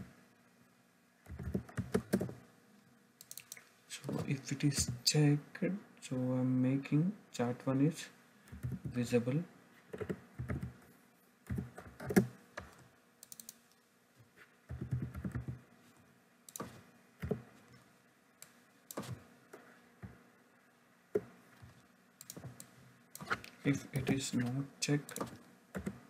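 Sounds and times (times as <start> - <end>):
computer keyboard typing: 1.3 - 2.4, 8.5 - 9.0, 9.9 - 10.8, 11.5 - 13.6, 14.7 - 15.6, 25.0 - 26.0.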